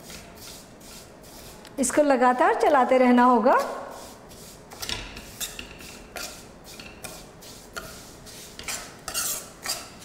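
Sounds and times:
steel spatula scraping pan: 3.5 - 10.0.

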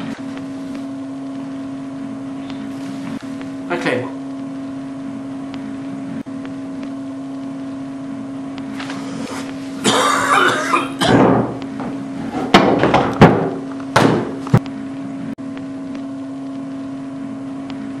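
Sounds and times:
electrical hum: 0.0 - 18.0
rustling and handling noise: 8.7 - 9.8
sharp knocks: 12.4 - 14.4.

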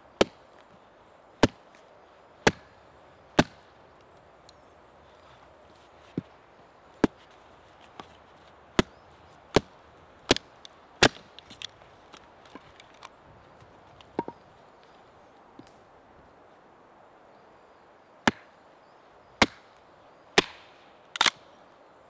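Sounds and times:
hatchet chopping wood: 0.2 - 0.4, 1.4 - 1.6, 2.4 - 2.7, 3.4 - 3.6, 8.8 - 11.3, 18.3 - 18.5, 19.4 - 19.7, 20.4 - 20.6.

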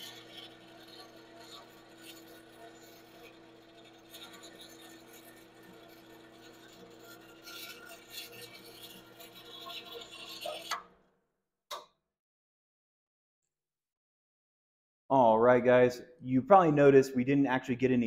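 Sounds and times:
drill bit cutting metal: 0.0 - 10.8.

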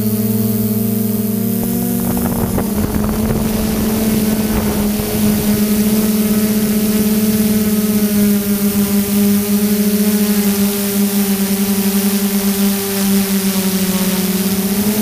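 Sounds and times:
drone motors humming: 0.0 - 15.0
wind rumbling on microphone: 1.0 - 9.7.

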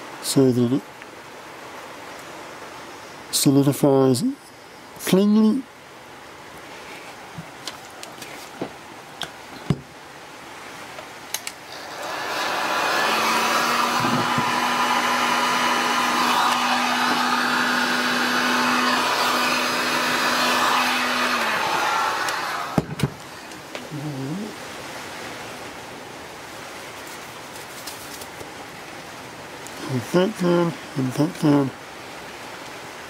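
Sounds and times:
heat gun fan humming: 11.2 - 23.9.

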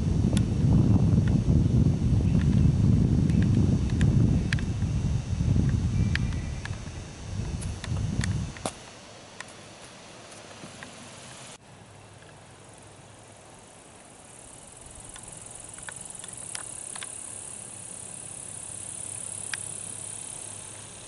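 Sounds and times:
insects buzzing: 0.0 - 21.0
faint ticks: 3.2 - 4.8, 5.6 - 6.9, 15.0 - 17.4, 18.8 - 19.8.

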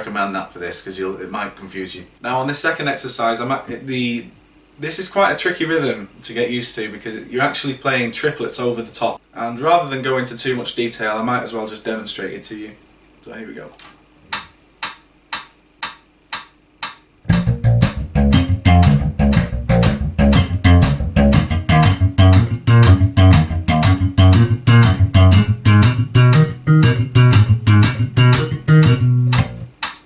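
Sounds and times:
metronome clicking: 14.3 - 30.0
slapped electric bass: 17.3 - 29.8.

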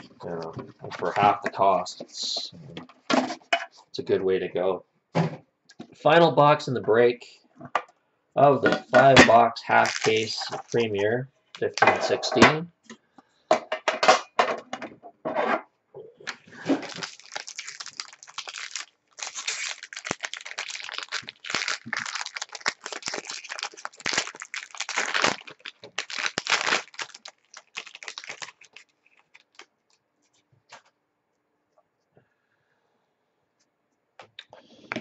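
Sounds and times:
foil wrapper crinkling and tearing: 9.6 - 11.8, 16.6 - 30.8.

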